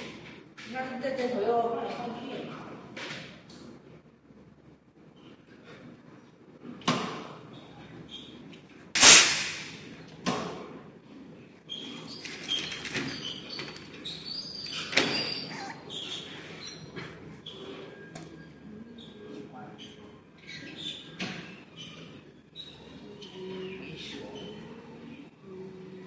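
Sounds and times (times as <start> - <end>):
sharp metal knocks and bangs: 9.0 - 9.8.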